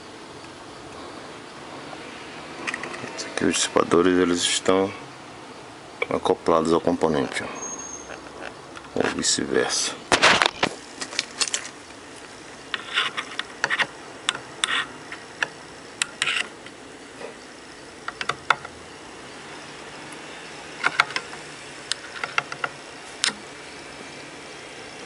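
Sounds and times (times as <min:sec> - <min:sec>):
steady faint hiss: 0:00.0 - 0:25.0
clicks taps and rustles: 0:10.1 - 0:17.4, 0:20.8 - 0:23.4.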